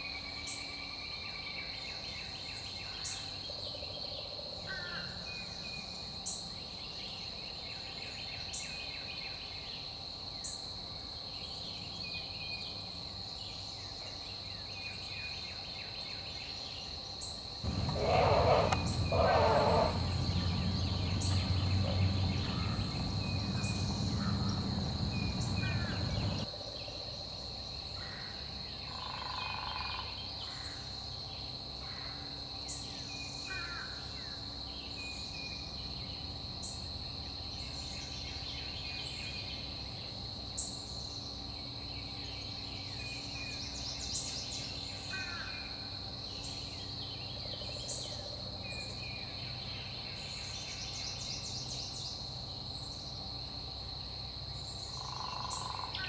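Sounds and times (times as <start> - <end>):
bird chirps and calls: 17.7 - 26.4
low rumble: 17.7 - 26.4.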